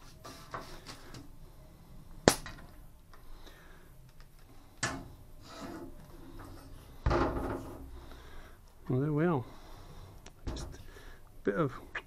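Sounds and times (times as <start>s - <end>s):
quiet scraping: 4.4s - 11.0s.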